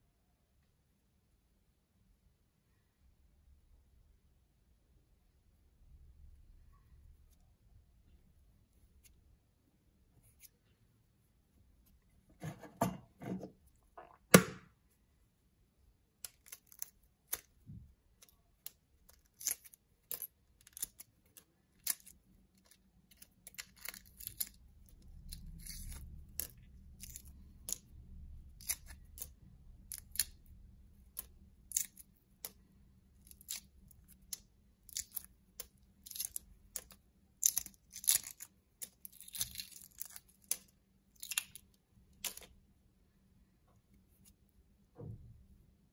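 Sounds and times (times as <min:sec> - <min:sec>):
egg shell crackling: 0:18.3 - 0:42.5.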